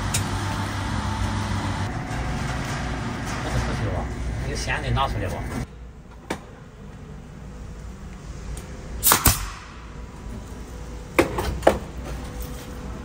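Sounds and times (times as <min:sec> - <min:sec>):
nail gun shots: 0:09.0 - 0:09.8.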